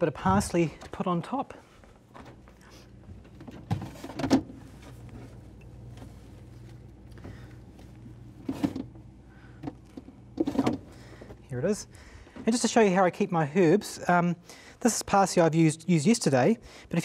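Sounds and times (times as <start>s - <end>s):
refrigerator humming: 0.0s - 16.9s
things moved about inside fridge: 0.3s - 11.5s.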